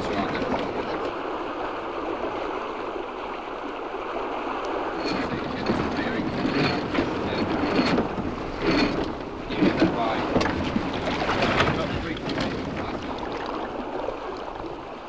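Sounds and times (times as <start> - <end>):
water rushing along hull: 0.0 - 15.0
sharp clicks and knocks: 5.2 - 13.6.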